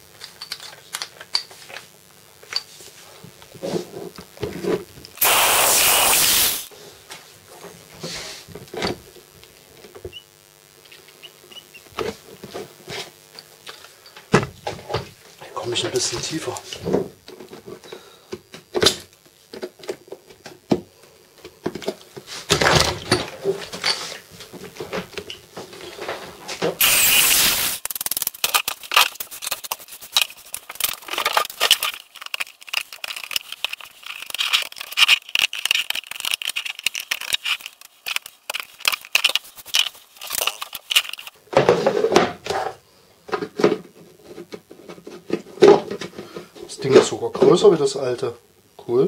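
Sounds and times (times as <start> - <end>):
knife scraping plastic: 28.0 - 41.3.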